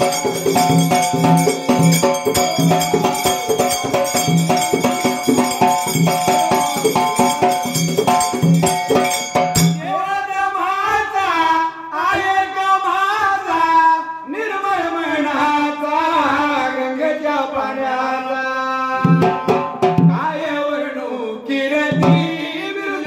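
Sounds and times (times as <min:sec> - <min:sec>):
dhol drum beat: 0:00.0 - 0:10.0, 0:19.0 - 0:20.3, 0:21.9 - 0:22.6
jingling hand percussion: 0:00.0 - 0:10.1
man singing folk song: 0:09.8 - 0:23.0.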